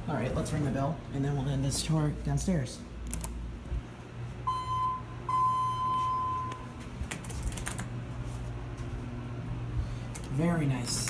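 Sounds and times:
cab fan humming: 0.0s - 11.0s
elevator alarm tone: 4.4s - 6.8s.

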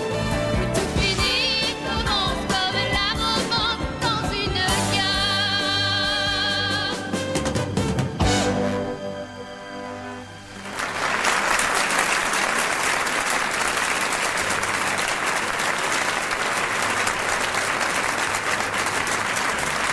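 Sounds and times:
orchestra chord: 7.4s - 11.0s
audience applause: 10.6s - 19.9s.

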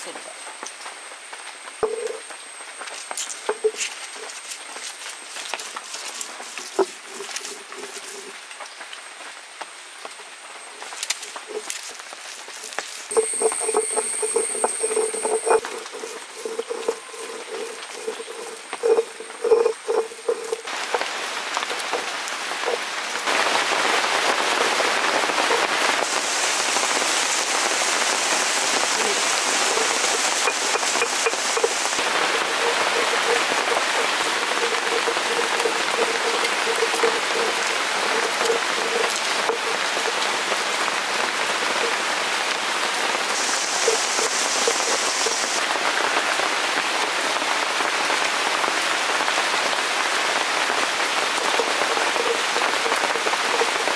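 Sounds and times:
steady rain falling: 0.0s - 53.9s
low pulsing call: 13.1s - 20.7s.

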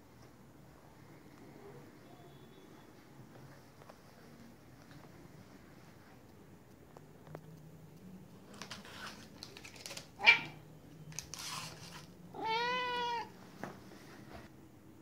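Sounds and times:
cat meowing softly: 12.3s - 13.4s.

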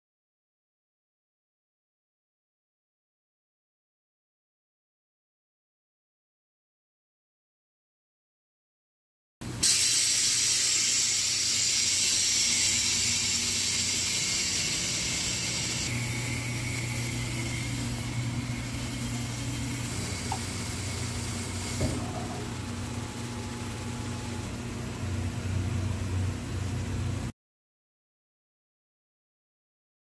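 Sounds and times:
hiss of spraying water: 9.6s - 15.9s
motor hum: 11.5s - 27.3s.

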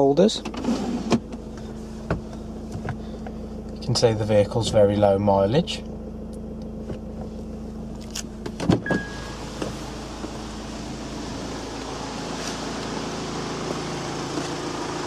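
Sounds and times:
diesel engine idling: 0.0s - 15.0s
brief beep: 8.8s - 9.4s.

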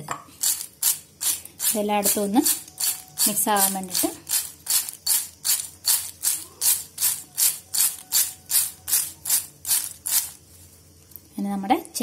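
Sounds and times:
chips rattling in ceramic bowl: 1.6s - 10.4s.

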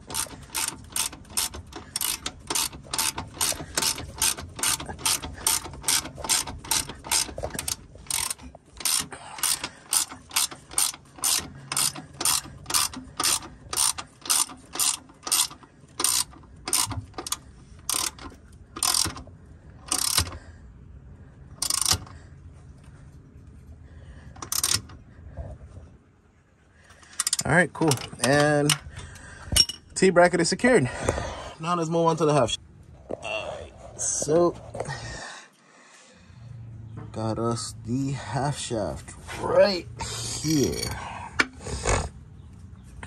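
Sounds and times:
ratchet wrench clicking: 0.0s - 20.4s, 21.6s - 22.2s, 24.4s - 25.0s, 27.2s - 28.8s.

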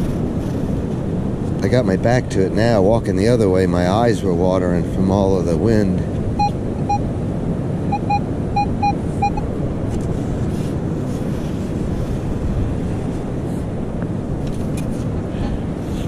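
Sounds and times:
wind buffeting microphone: 0.0s - 16.0s
metal detector short beeps: 6.4s - 7.0s, 7.9s - 9.4s.

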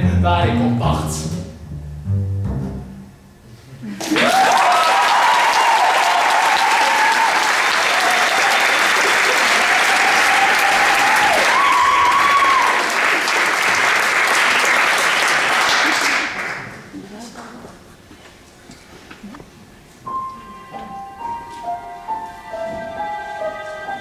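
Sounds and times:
people cheering: 4.0s - 16.4s
audience applauding: 4.0s - 16.9s.

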